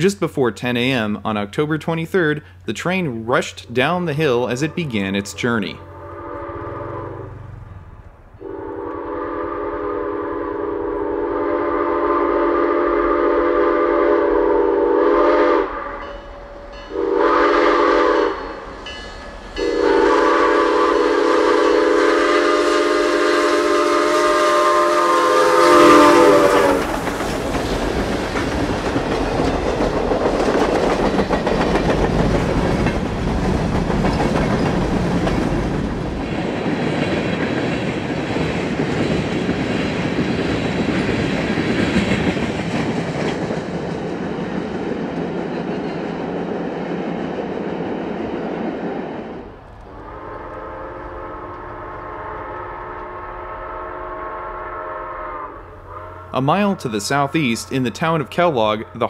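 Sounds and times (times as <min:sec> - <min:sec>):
steam locomotive whistle: 0:04.4 - 0:07.6, 0:08.4 - 0:19.0, 0:19.6 - 0:27.1, 0:49.9 - 0:59.0
train wheels rumbling and clattering: 0:18.3 - 0:22.0, 0:25.1 - 0:52.0.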